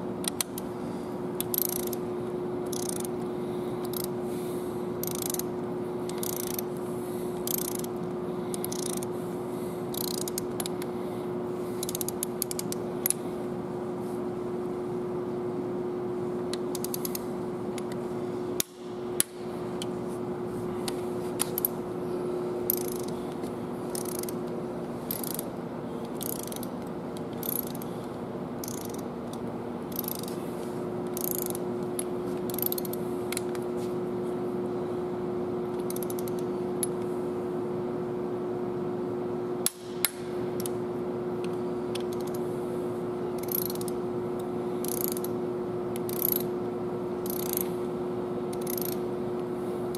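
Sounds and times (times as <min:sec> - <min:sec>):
steady shop hum: 0:00.0 - 0:49.9
hand ratchet clicking: 0:00.2 - 0:00.6, 0:01.4 - 0:02.0, 0:02.6 - 0:03.1, 0:03.8 - 0:04.1, 0:05.0 - 0:05.5, 0:06.1 - 0:06.7, 0:07.4 - 0:09.1, 0:09.9 - 0:10.8, 0:11.8 - 0:13.2, 0:16.7 - 0:17.2, 0:22.7 - 0:23.2, 0:23.9 - 0:24.4, 0:25.1 - 0:25.5, 0:26.1 - 0:27.9, 0:28.6 - 0:29.0, 0:29.9 - 0:30.3, 0:31.1 - 0:33.5, 0:35.8 - 0:36.5, 0:43.4 - 0:44.0, 0:44.8 - 0:45.3, 0:46.0 - 0:46.5, 0:47.2 - 0:47.7, 0:48.5 - 0:49.0.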